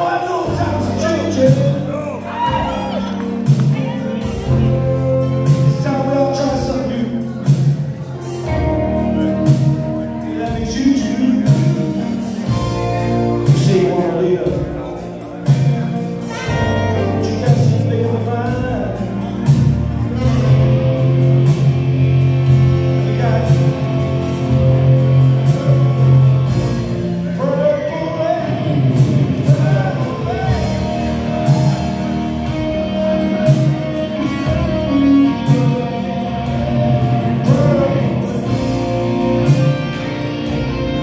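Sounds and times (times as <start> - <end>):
bass: 0.0 - 41.0
drums: 0.0 - 41.0
electric guitar: 0.0 - 41.0
person singing: 27.4 - 41.0.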